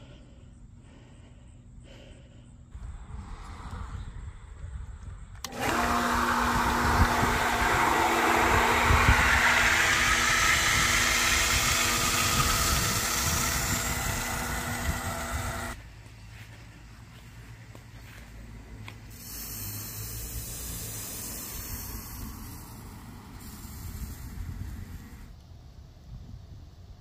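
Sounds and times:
small motor humming: 0:05.4 - 0:15.8, 0:19.0 - 0:25.4.

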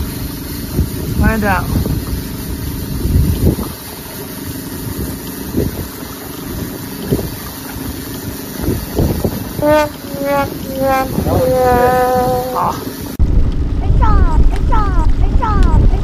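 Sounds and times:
outboard motor running: 0:00.0 - 0:13.2
wind gusts on microphone: 0:00.6 - 0:03.8, 0:08.6 - 0:16.0
person calling out: 0:09.6 - 0:12.9.

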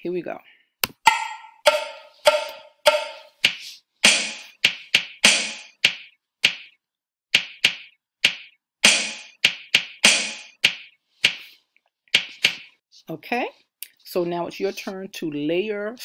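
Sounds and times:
bass and snare drum pattern: 0:01.1 - 0:06.7, 0:07.4 - 0:11.5, 0:12.2 - 0:12.7
pitched ticks: 0:01.1 - 0:06.7.

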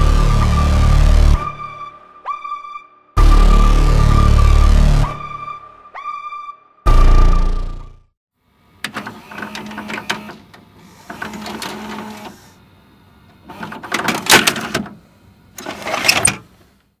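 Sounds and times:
tape mechanism clicking and whirring: 0:08.8 - 0:12.6, 0:13.3 - 0:16.5.

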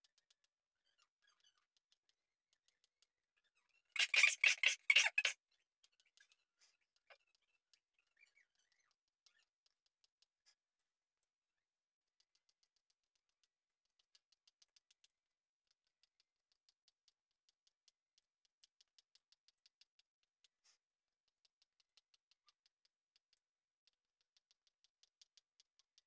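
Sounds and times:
chalk ticking on blackboard: 0:04.0 - 0:07.9, 0:12.1 - 0:26.0.

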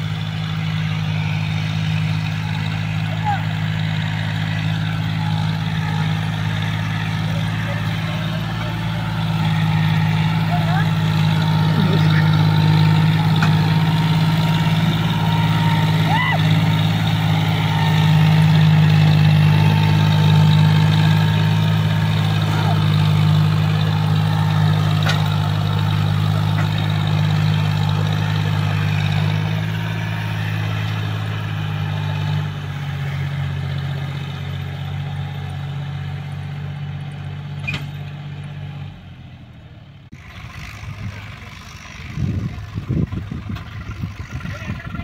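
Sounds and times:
tractor diesel engine running: 0:00.0 - 0:45.0.

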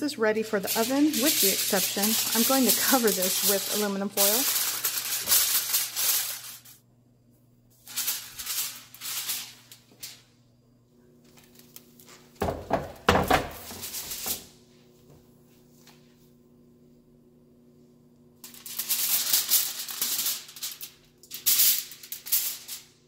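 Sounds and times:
aluminium foil crinkling: 0:00.4 - 0:06.8, 0:07.8 - 0:10.3, 0:11.2 - 0:12.3, 0:13.7 - 0:14.4, 0:18.4 - 0:23.0.

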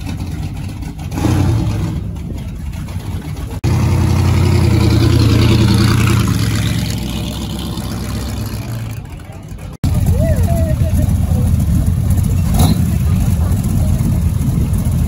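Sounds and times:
motorcycle engine revving: 0:03.5 - 0:10.2, 0:10.8 - 0:15.0.

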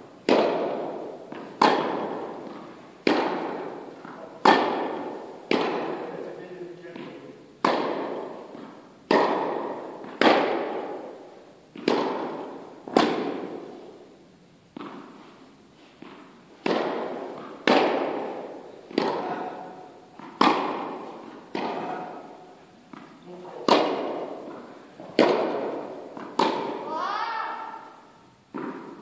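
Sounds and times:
ball bouncing on court: 0:00.2 - 0:06.1, 0:06.9 - 0:13.7, 0:16.0 - 0:27.8, 0:28.5 - 0:29.0
rackets striking tennis ball: 0:00.2 - 0:29.0.

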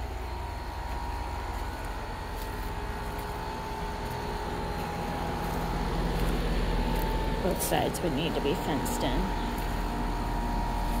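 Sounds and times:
air conditioner humming: 0:00.0 - 0:11.0.

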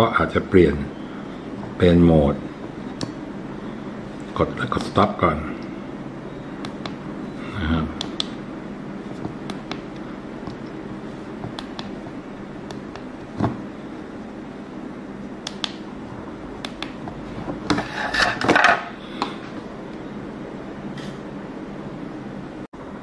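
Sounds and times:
room noise: 0:00.0 - 0:23.0.

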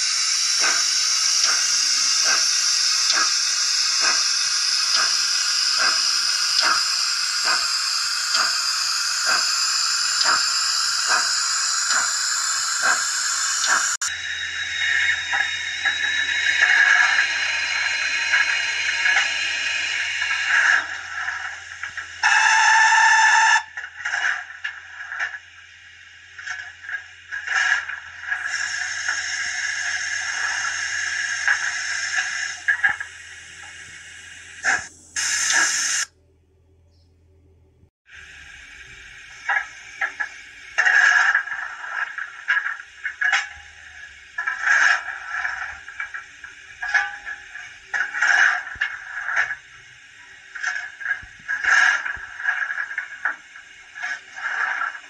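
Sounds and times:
low hum: 0:00.0 - 0:22.3, 0:26.8 - 0:41.0
steam hissing: 0:00.0 - 0:36.1, 0:38.1 - 0:55.0
steam locomotive chuffs: 0:00.0 - 0:36.1, 0:38.1 - 0:55.0.

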